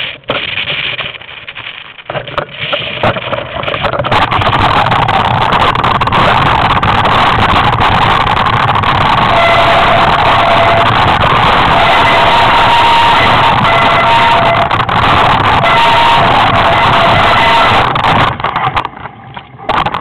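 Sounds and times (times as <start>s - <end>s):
mountain bike rattling over rocks: 0.0s - 9.6s, 17.9s - 20.0s
wind noise on microphone: 0.0s - 20.0s.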